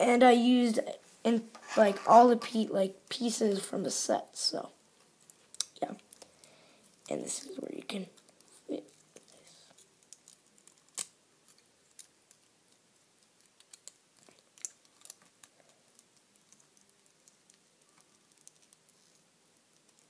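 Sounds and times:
plastic toy pieces clicking: 13.3 - 18.9.

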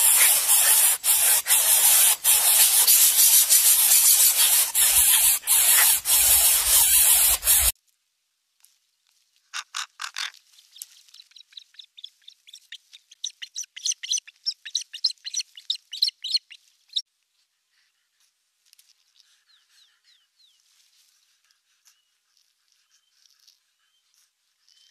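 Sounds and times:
birds giving high-pitched alarm calls: 0.0 - 7.7, 13.2 - 16.6.

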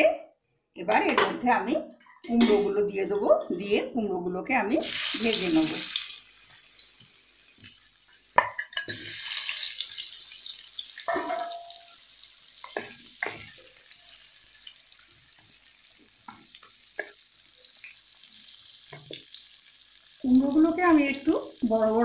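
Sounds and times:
vegetables sizzling in hot oil: 4.8 - 22.0
pieces knocking into pan: 11.0 - 11.9.

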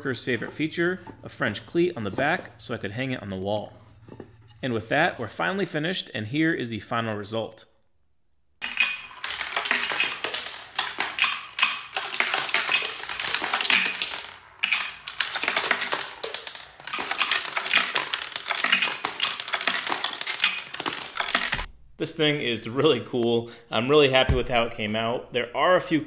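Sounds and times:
coins clattering down wooden ramps: 8.6 - 21.7.

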